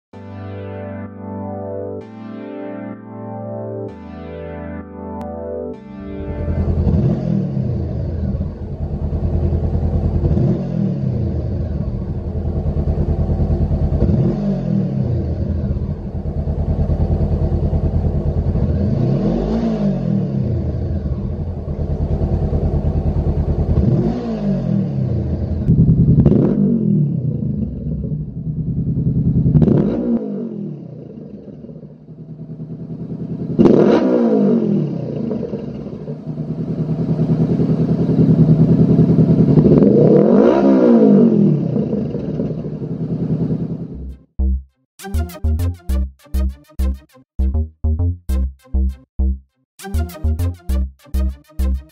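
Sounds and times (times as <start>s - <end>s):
motorcycle engine revving: 6.2s - 44.5s.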